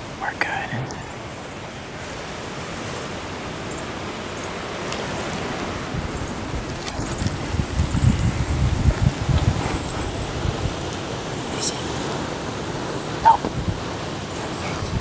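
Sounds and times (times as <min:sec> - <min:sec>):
wind buffeting microphone: 0:00.0 - 0:15.0
wind rushing: 0:05.7 - 0:15.0.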